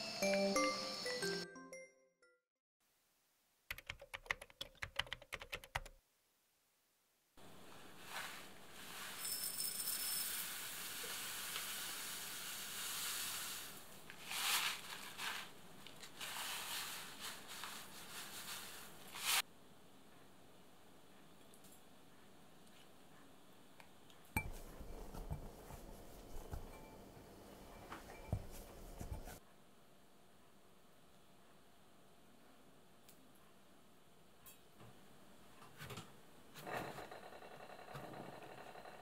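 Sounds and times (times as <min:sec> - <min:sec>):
rice flour rustling in a glass bowl: 0:07.8 - 0:19.4.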